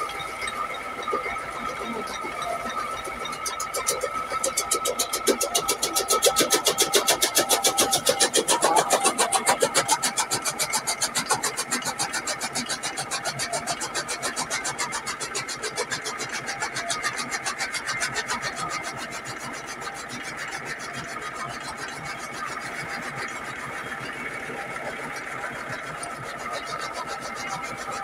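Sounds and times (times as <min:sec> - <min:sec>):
tractor engine running: 0:00.0 - 0:28.0
chaff cutter chopping fodder: 0:03.8 - 0:13.7.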